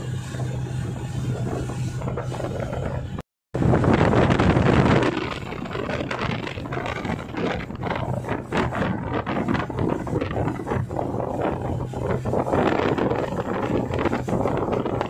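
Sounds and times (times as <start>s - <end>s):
boat engine running: 0.0s - 15.0s
churning wake: 0.0s - 15.0s
wind buffeting microphone: 0.0s - 15.0s.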